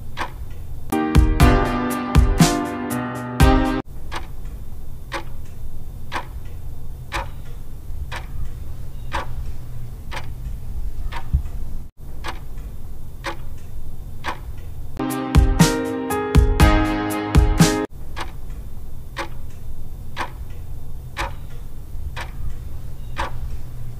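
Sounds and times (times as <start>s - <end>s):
clock ticking: 0.0s - 2.7s, 3.4s - 11.5s, 12.1s - 14.6s, 16.4s - 23.8s
music: 0.9s - 3.8s, 15.0s - 17.9s.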